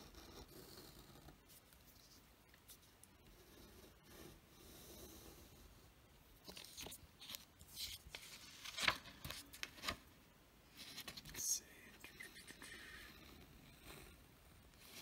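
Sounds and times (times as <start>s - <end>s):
pen drawing on paper: 0.0s - 1.9s, 3.2s - 5.9s
paper rustling and sliding: 6.4s - 11.4s.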